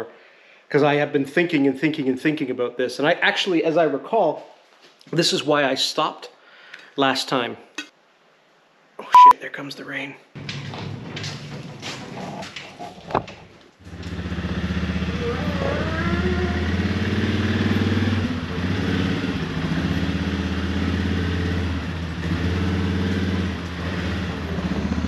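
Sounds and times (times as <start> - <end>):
atv engine running: 13.8 - 25.0.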